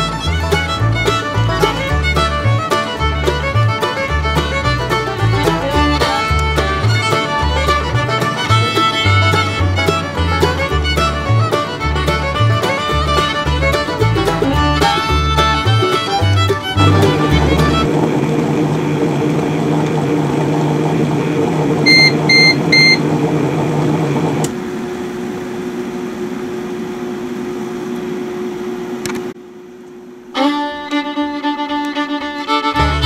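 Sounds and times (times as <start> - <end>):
fiddle music: 0.0 - 18.0, 30.3 - 33.0
food processor humming: 16.8 - 30.2
short beeps: 21.9 - 23.0.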